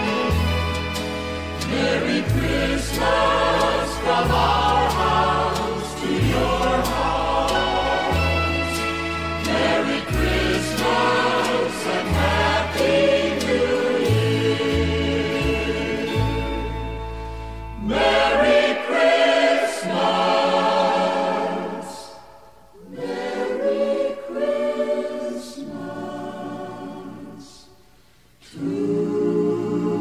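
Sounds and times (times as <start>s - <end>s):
choir singing slow chords: 0.0s - 30.0s.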